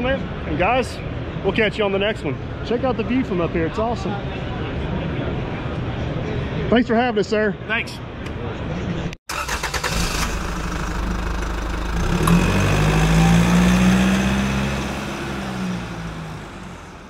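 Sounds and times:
engine droning: 9.4s - 17.0s.

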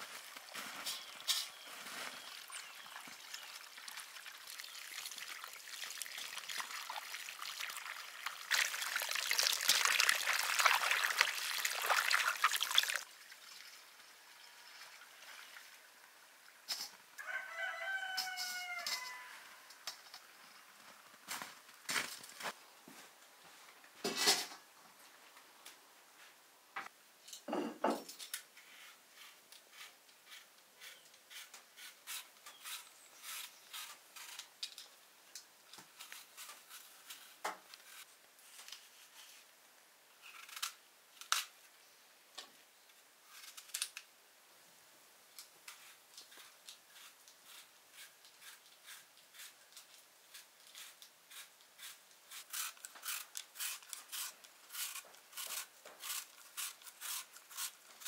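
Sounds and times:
kitchen work clicking and scraping: 24.0s - 24.6s.

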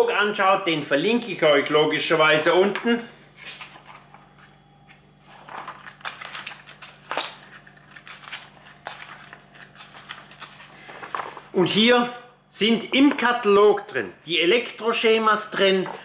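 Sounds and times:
paper pages rustling: 3.4s - 11.5s.

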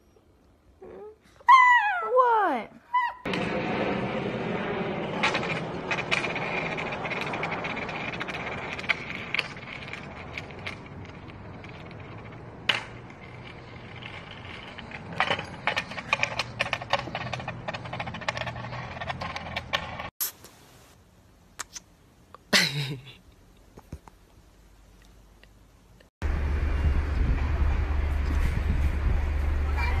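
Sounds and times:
skateboard wheels rolling on concrete: 3.3s - 20.1s, 26.2s - 30.0s.

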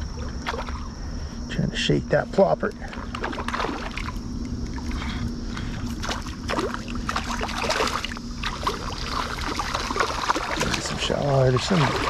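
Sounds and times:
fish splashing and thrashing: 0.0s - 1.0s, 2.8s - 12.0s.

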